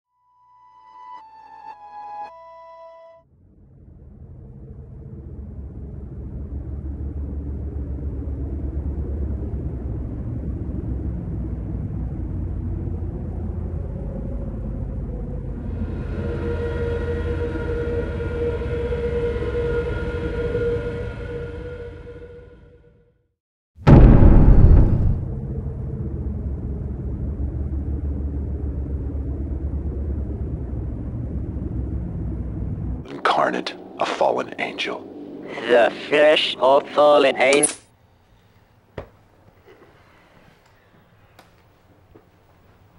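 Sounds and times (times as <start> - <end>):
low rumbling drone: 3.2 - 22.8, 23.9 - 37.4.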